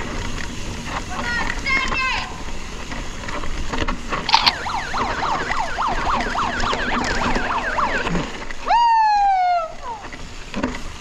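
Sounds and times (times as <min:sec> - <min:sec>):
sharp click: 0:04.3 - 0:04.7.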